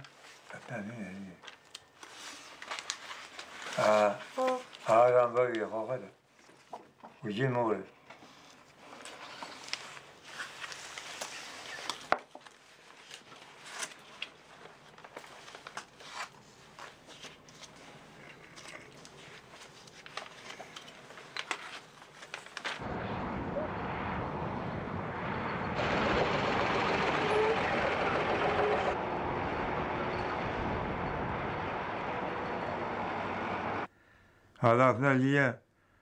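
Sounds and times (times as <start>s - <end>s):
magazine pages rustling: 0.0s - 5.7s, 8.2s - 22.8s
outdoor rumbling noise: 22.8s - 33.9s.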